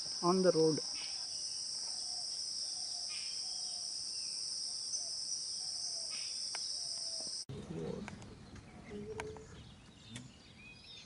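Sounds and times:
insect chorus drone: 0.0s - 7.5s.

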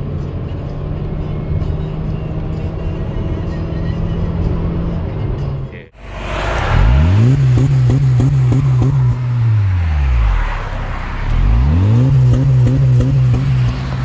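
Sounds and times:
car engine revving: 6.0s - 14.0s.

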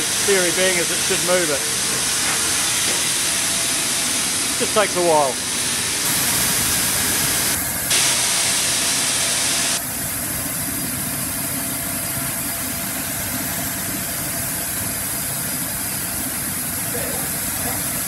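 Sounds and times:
steam hissing loudly: 0.0s - 9.9s
quieter steam hiss and rumble: 0.0s - 11.2s.

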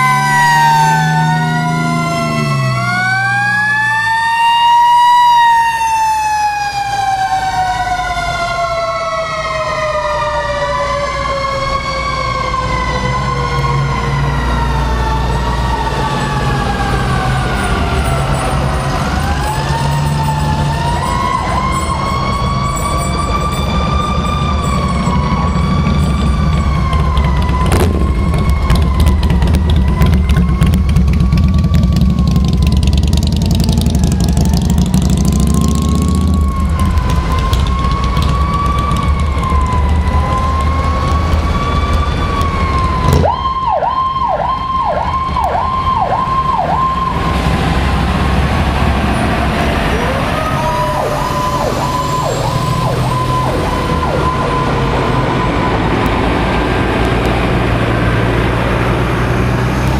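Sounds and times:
motorcycle passing: 0.0s - 4.0s, 23.9s - 43.4s
fire truck sirens wailing: 0.0s - 59.9s
truck engines rumbling: 0.0s - 59.9s.

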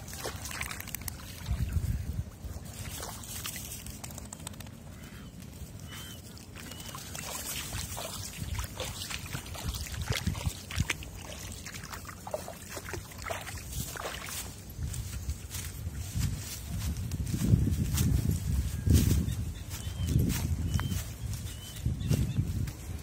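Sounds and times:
splashing in shallow water: 0.0s - 4.8s, 5.7s - 16.2s.

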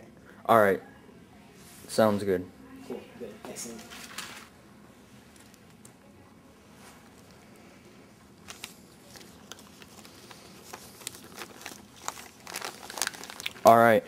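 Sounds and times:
plastic bag crinkling and rustling: 8.4s - 13.8s.

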